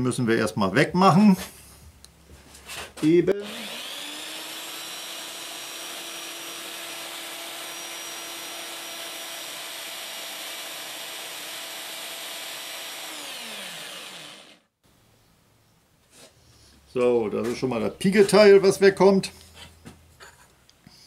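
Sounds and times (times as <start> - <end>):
power tool whining: 3.3 - 14.7.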